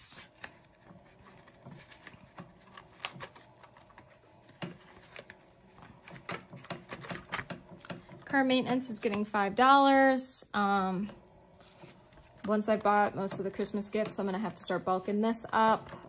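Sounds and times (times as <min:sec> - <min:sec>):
paper bills rustling: 0:00.3 - 0:07.6
plastic envelopes clicking and tapping: 0:00.3 - 0:09.3.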